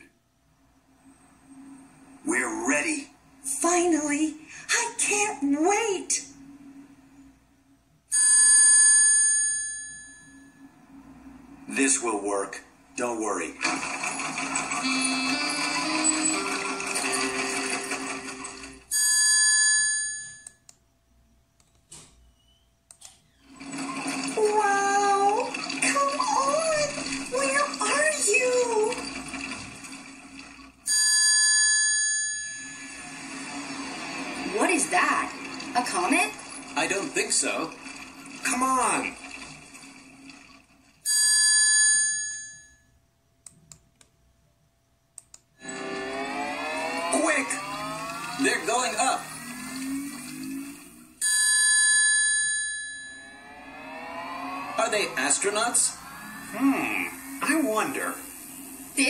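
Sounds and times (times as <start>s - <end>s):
background music: 0.9s - 19.0s, 32.6s - 40.8s, 45.6s - 51.2s
rising sweep: 32.6s - 38.5s, 45.6s - 51.2s, 53.1s - 59.0s
faint clicks: 45.2s - 45.5s.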